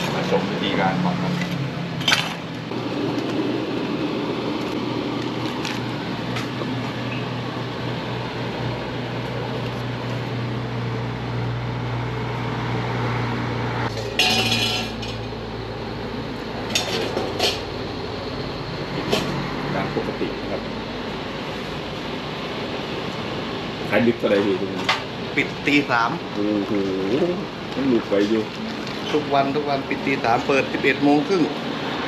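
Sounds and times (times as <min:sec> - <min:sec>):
steady low hum: 0:00.0 - 0:31.8
clatter of dishes: 0:13.9 - 0:15.2
utensils and dishes clinking: 0:13.9 - 0:15.3, 0:16.7 - 0:17.7.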